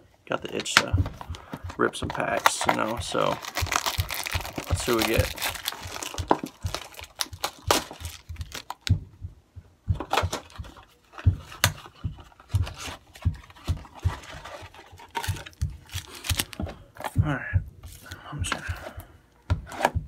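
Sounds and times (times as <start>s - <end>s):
cardboard box taps and rustles: 0.6s - 9.1s, 9.9s - 17.2s.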